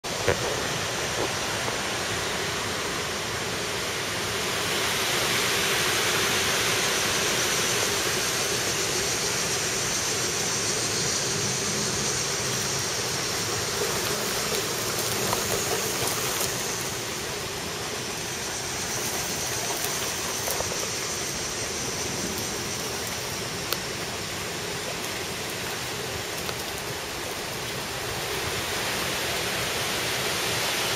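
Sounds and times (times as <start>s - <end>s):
rain falling: 0.0s - 30.9s.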